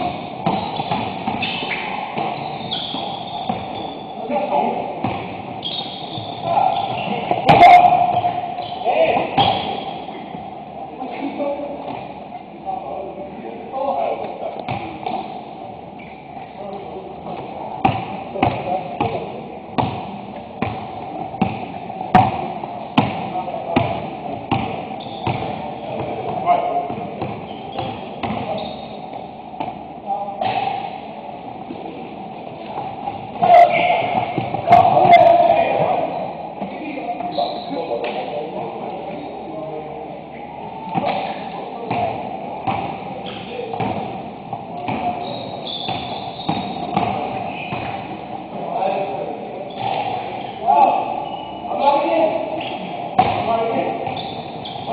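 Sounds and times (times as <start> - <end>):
basketball bouncing: 0.0 - 3.9, 5.0 - 5.4, 14.6 - 15.3, 17.8 - 28.5, 32.7 - 36.0, 41.9 - 44.2, 45.8 - 48.1, 53.2 - 54.8
sneaker squeak: 0.0 - 4.4, 5.0 - 10.4, 16.0 - 16.4, 24.6 - 29.3, 37.1 - 38.2, 42.7 - 44.0, 44.8 - 48.1, 49.6 - 54.9.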